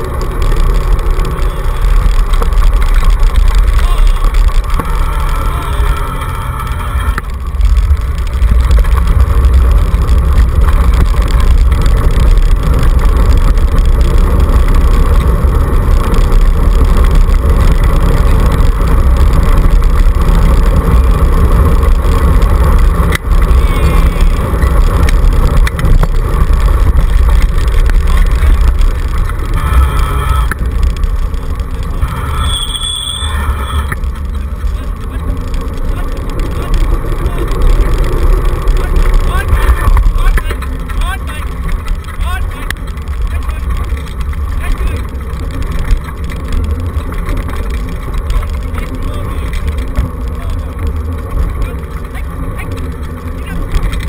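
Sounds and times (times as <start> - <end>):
wheels rolling on gravel: 0.0 - 54.0
high squeal: 32.0 - 34.0.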